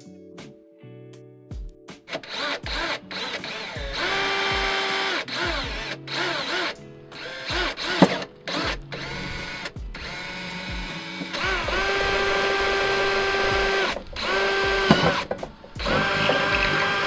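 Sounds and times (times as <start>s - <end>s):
cordless drill motor: 2.1s - 17.0s.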